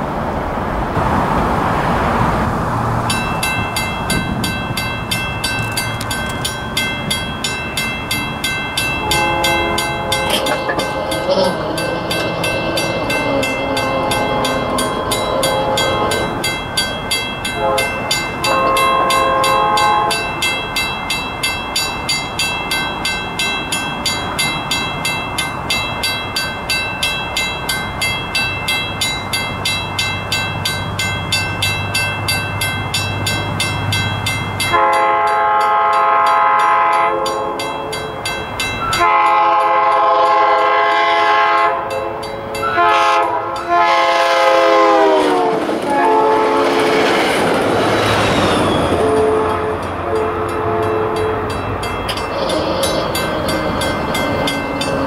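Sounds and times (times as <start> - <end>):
diesel train engine hum: 0.0 - 55.0
railroad crossing bell dinging: 3.1 - 55.0
train horn: 9.0 - 16.4, 17.5 - 20.4, 34.7 - 37.7, 39.0 - 47.1, 48.8 - 51.6, 52.3 - 55.0.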